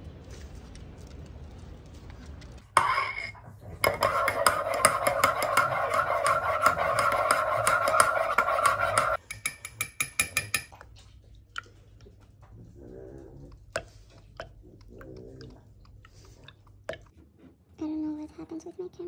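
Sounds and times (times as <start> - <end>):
spoon clinking in ceramic mug: 2.8 - 10.8.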